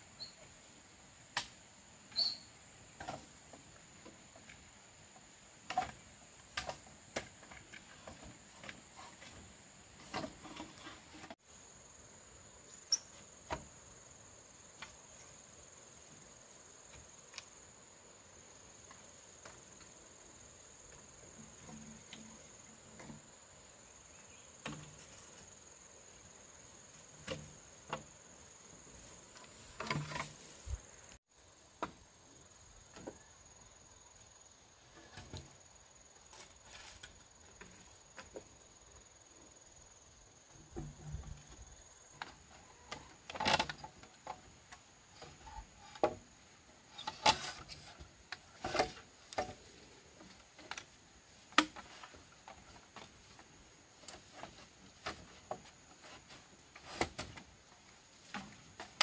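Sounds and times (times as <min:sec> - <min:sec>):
insects droning: 0:00.0 - 0:59.0
bamboo poles knocking: 0:51.5 - 0:53.2.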